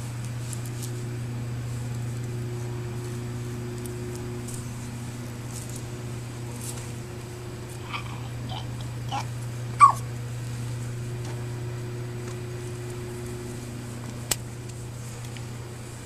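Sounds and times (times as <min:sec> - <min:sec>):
puppy whimpering: 0:07.8 - 0:10.0.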